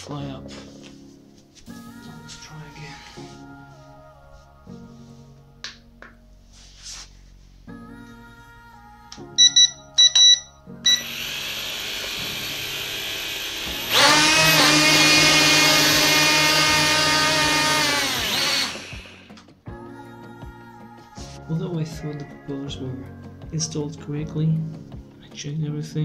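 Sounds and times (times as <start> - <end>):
short electronic beeps: 9.4 - 11.1
drone motors whirring: 10.9 - 19.3.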